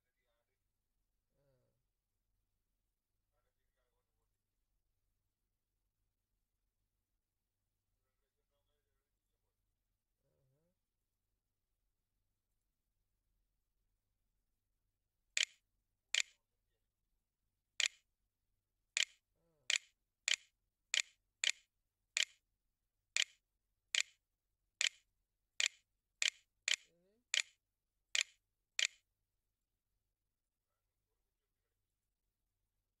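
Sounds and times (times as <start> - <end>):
key clicks: 16.2 - 16.4, 17.8 - 18.0, 19.0 - 21.6, 22.2 - 22.4, 23.2 - 23.4, 24.0 - 24.2, 25.6 - 27.6, 28.2 - 29.0.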